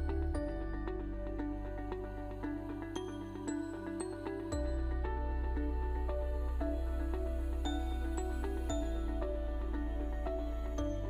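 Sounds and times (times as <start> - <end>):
soft instrumental music: 0.0 - 11.0.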